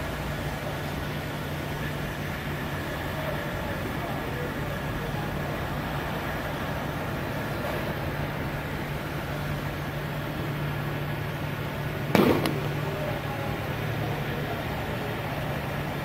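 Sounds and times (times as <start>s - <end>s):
distant jet engines running: 0.0s - 16.0s
sharp knock: 12.1s - 12.8s.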